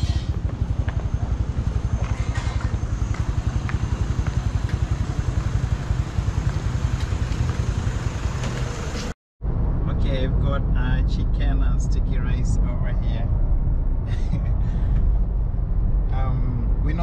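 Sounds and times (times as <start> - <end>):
scooter engine puttering: 0.0 - 9.1
street traffic: 0.0 - 17.0.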